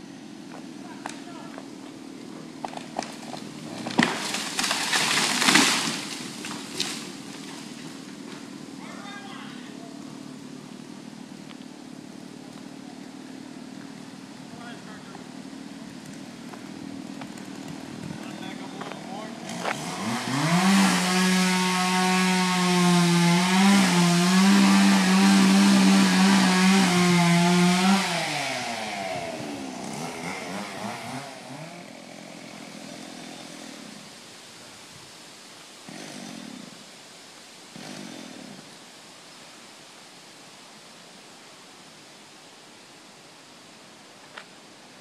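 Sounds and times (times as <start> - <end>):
chainsaw running at high revs: 18.2 - 34.2, 35.8 - 36.9, 37.7 - 38.8.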